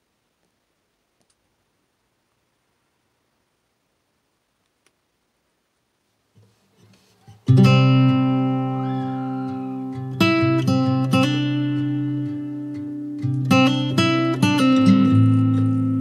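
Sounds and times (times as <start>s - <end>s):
strummed guitar music: 6.8s - 16.0s.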